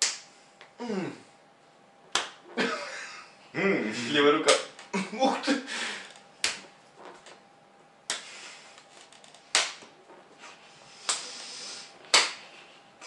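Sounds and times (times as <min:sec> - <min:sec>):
open-hand slaps to the face: 0:00.0 - 0:00.3, 0:02.1 - 0:02.4, 0:06.4 - 0:06.7, 0:09.5 - 0:09.9, 0:11.0 - 0:11.3, 0:12.1 - 0:12.4.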